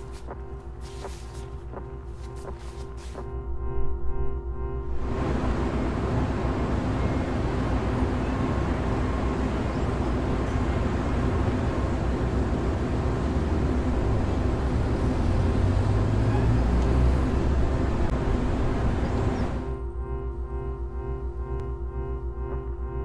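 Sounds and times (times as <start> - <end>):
faint held tones: 0.0 - 11.3, 18.9 - 23.0
low rumbling noise: 0.0 - 23.0.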